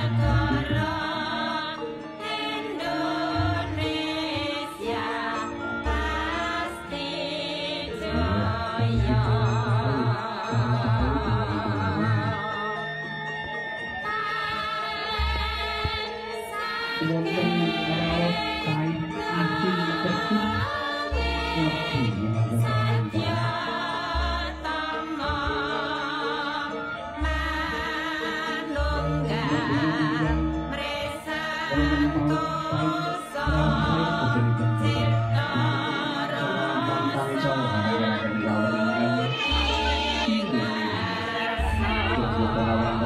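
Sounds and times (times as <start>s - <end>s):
person singing with vibrato: 0.0s - 13.0s, 13.9s - 43.0s
deep bass notes: 41.6s - 43.0s.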